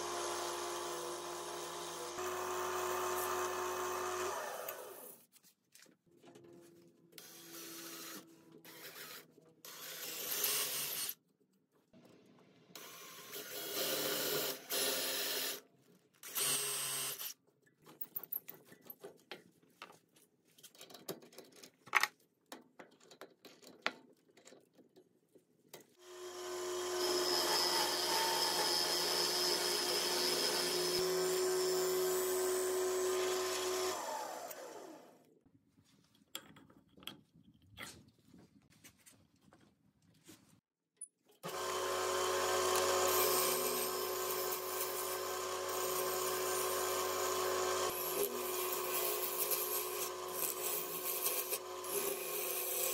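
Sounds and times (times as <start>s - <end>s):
wood lathe whining and humming: 0.0s - 5.2s, 26.1s - 35.1s, 41.4s - 52.9s.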